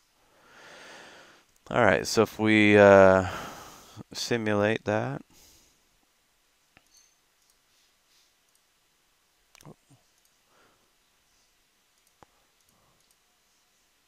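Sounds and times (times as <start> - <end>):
computer mouse clicks: 9.5 - 10.4, 12.0 - 13.2.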